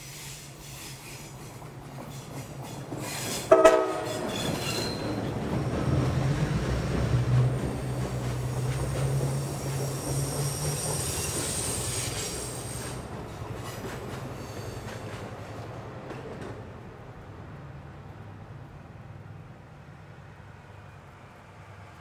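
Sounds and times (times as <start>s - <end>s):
train wheel squeal: 0.0s - 15.6s
diesel locomotive drone: 0.0s - 22.0s
train cars rolling past: 0.0s - 22.0s.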